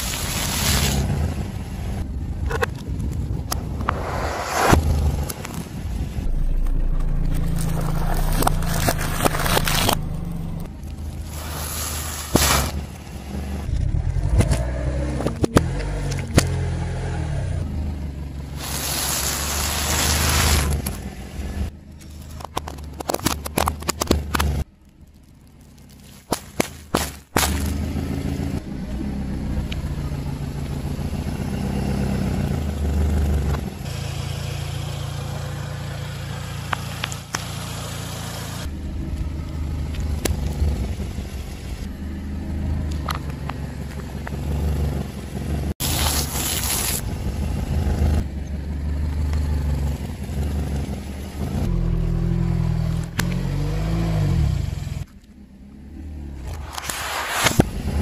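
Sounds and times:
car engine running at low revs: 0:00.0 - 0:58.0
tyre crushing objects on asphalt: 0:11.1 - 0:13.0, 0:25.6 - 0:27.9.

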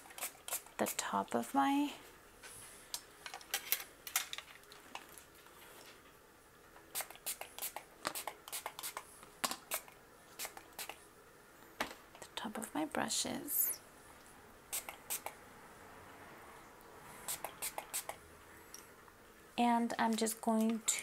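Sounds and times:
spray bottle squirting: 0:00.0 - 0:01.0, 0:06.9 - 0:11.0, 0:14.7 - 0:15.3, 0:17.3 - 0:18.2.

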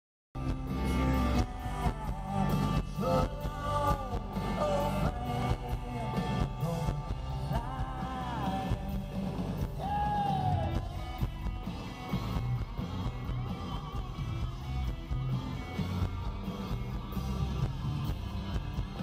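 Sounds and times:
drums: 0:00.3 - 0:19.0
bass: 0:00.4 - 0:19.0
person singing: 0:00.8 - 0:11.2.

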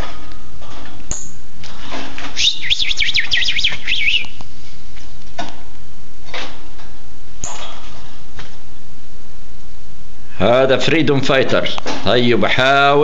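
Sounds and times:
cardinal singing slurred whistles: 0:02.4 - 0:04.4.

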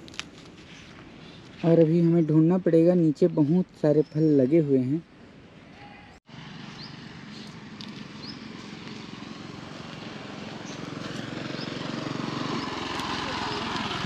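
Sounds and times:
engine running: 0:06.3 - 0:14.0.

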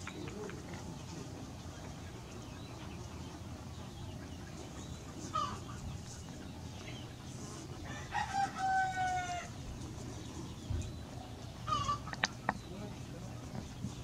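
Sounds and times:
rooster crowing: 0:07.8 - 0:09.6.

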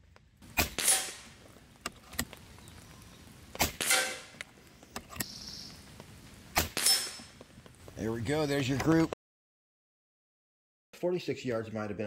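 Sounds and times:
air rifle firing: 0:00.5 - 0:01.3, 0:03.6 - 0:04.4, 0:06.6 - 0:07.3.

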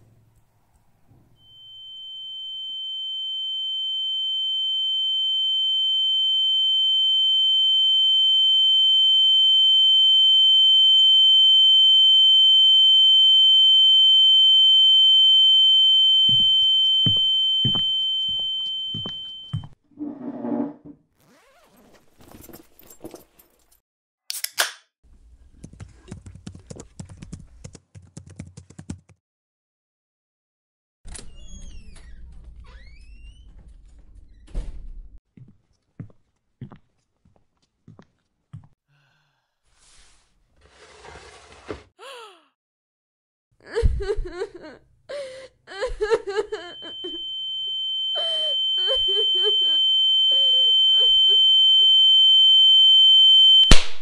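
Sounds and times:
high-pitched ringing tone: 0:01.4 - 0:19.8, 0:46.7 - 0:53.7.

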